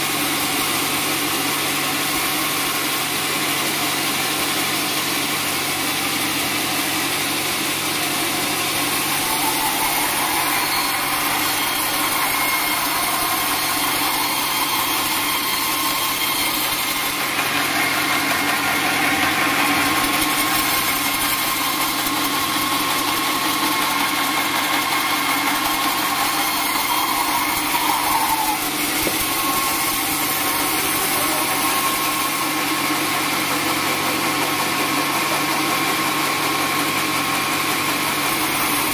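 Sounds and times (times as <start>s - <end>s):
band sawmill sawing log: 0.0s - 38.9s.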